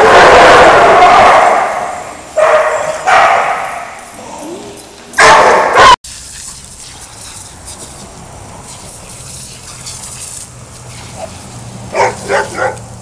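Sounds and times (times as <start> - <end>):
loud dog bark: 0.0 - 3.9, 5.2 - 6.0, 11.9 - 12.9
garden hose spraying water: 6.0 - 13.0.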